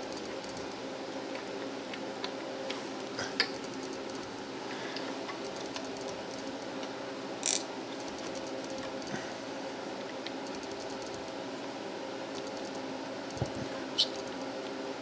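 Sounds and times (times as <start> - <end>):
steady low hum: 0.0 - 15.0
sharp click: 12.3 - 14.3.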